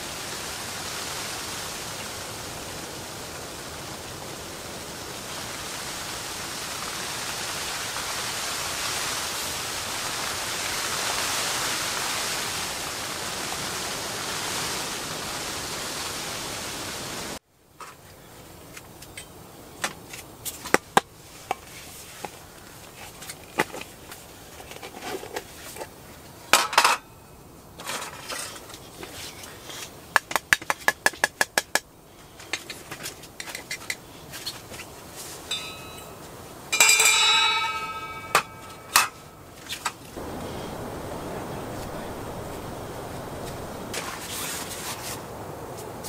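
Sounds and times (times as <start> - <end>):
metal spoon clinking on steel tumblers: 35.5 - 39.3
ringing metal clang: 35.5 - 39.5.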